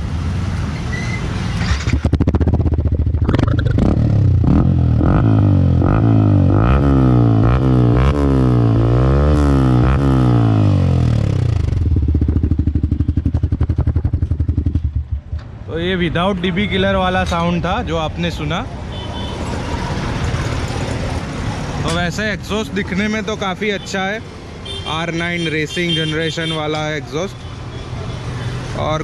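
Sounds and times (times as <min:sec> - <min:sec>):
motorcycle engine revving: 0:01.4 - 0:15.7.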